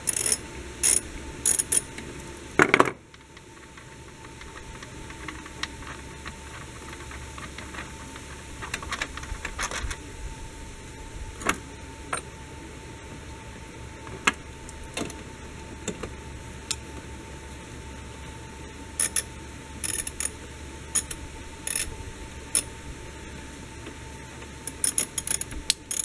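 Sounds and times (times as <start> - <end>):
tools clicking and rattling: 0.0 - 1.9, 19.0 - 20.4, 21.0 - 21.9, 24.6 - 26.0
faint steady hum: 0.0 - 26.0.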